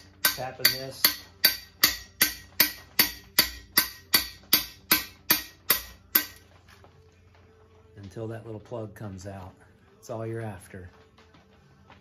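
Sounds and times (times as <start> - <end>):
hammer tapping on metal: 0.0 - 6.4.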